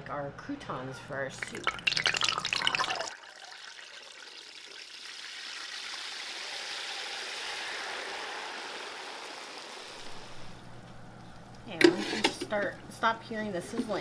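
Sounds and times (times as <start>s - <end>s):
lentils sizzling in hot oil: 4.4s - 10.8s.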